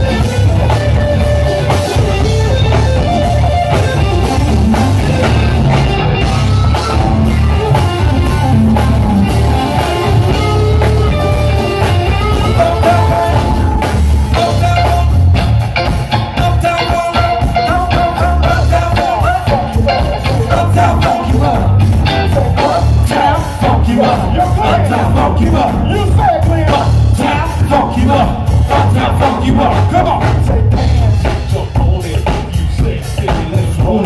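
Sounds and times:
electric guitar lines: 0.0 - 25.3
funk band playing: 0.0 - 34.0
person singing: 9.5 - 15.4, 16.0 - 34.0.

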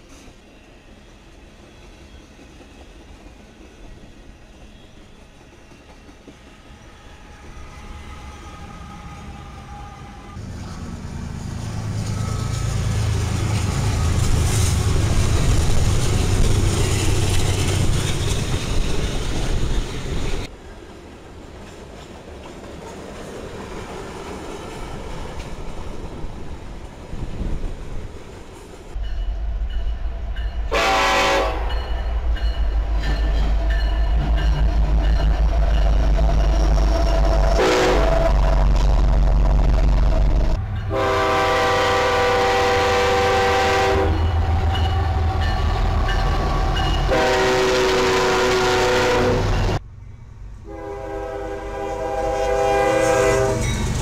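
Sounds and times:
diesel locomotive engine drone: 0.0 - 54.0
freight cars rumbling: 31.5 - 41.2.

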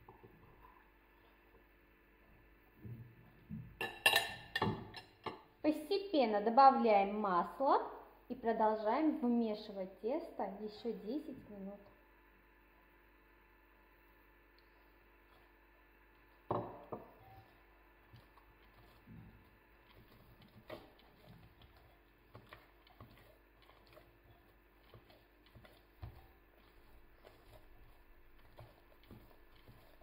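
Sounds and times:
dough squelching under kneading hands: 17.1 - 30.0.

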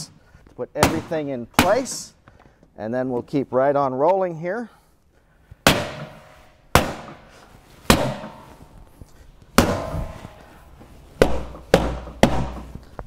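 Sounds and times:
rubber mallet striking metal column: 5.6 - 7.3, 7.9 - 8.6, 9.6 - 10.4, 11.2 - 12.8.

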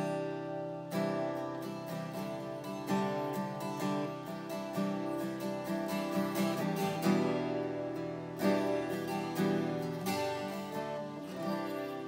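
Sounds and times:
acoustic guitar chords strummed: 0.0 - 12.0.

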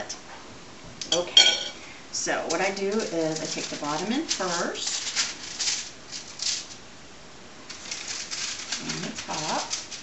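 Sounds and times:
aluminium foil crinkling: 2.4 - 6.8, 7.7 - 10.0.

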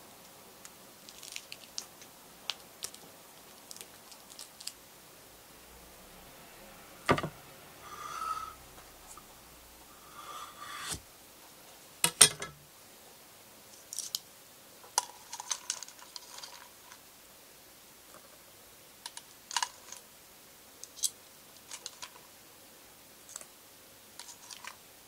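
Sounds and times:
plate scraping: 7.0 - 11.0.

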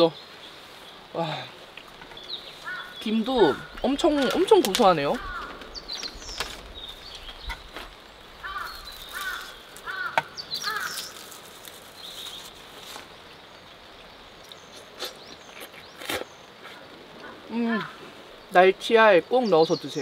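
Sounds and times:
birds chirping: 0.0 - 20.0
crow cawing: 2.6 - 3.8, 5.0 - 5.7, 8.4 - 11.2.

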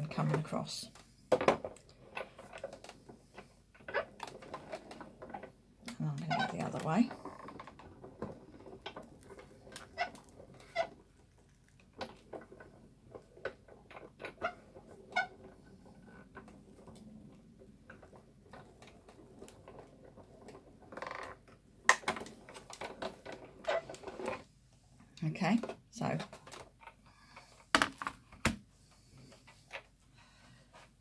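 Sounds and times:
hand crank creaking and clicking: 2.1 - 11.1, 11.8 - 16.5, 20.4 - 24.4.

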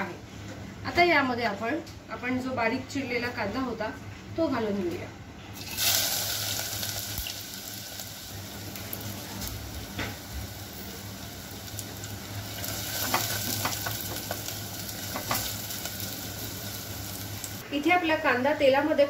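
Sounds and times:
onion sizzling in hot oil: 5.6 - 17.6.

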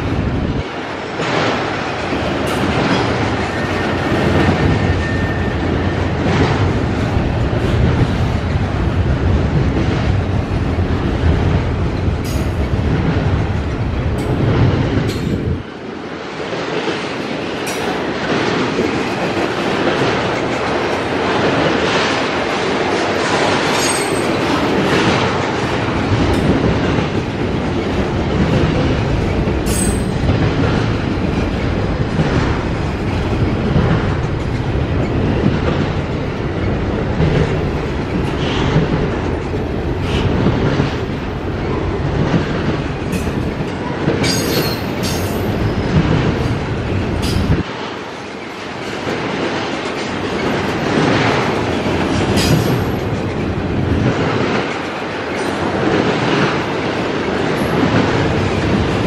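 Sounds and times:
freight train rumbling and clattering: 0.0 - 59.0
high wheel squeals: 4.7 - 6.1.

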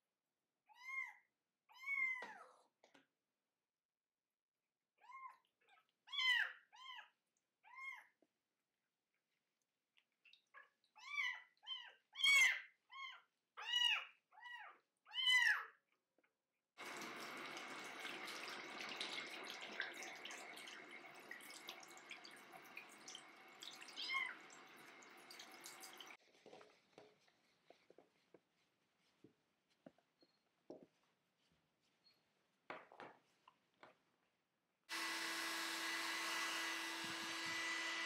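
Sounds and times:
kitten crying: 0.7 - 2.4, 6.1 - 7.1
sink tap running: 16.8 - 26.2, 34.9 - 38.0.

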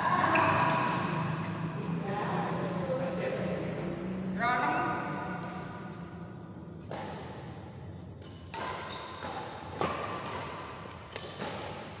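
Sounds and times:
racket hitting shuttlecock: 0.0 - 1.6, 5.3 - 6.0, 6.8 - 7.6, 8.2 - 12.0.

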